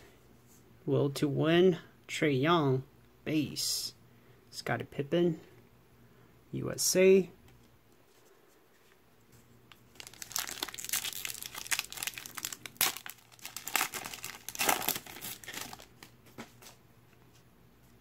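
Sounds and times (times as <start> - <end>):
foil wrapper crinkling and tearing: 9.7 - 16.1.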